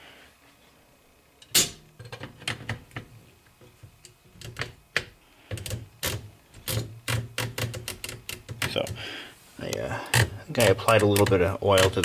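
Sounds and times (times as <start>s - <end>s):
typewriter carriage clicks and knocks: 4.4s - 8.9s.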